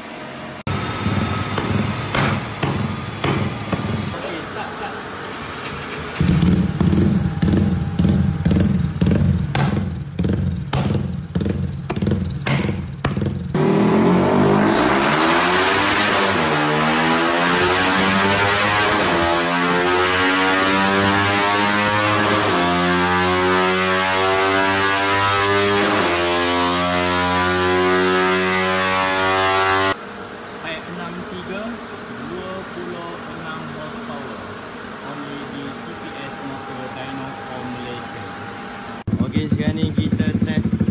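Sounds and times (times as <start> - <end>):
motorcycle engine revving: 6.1 - 30.0, 38.8 - 40.9.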